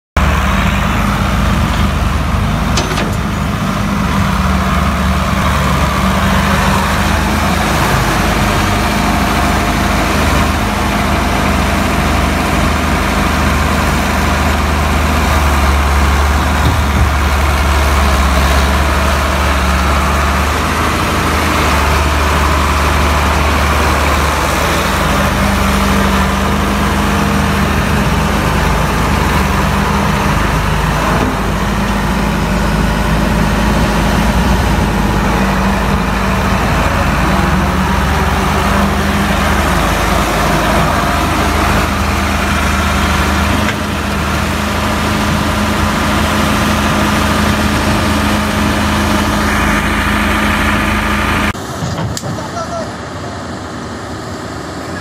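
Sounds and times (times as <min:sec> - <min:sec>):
excavator diesel engine: 0:00.0 - 0:55.0.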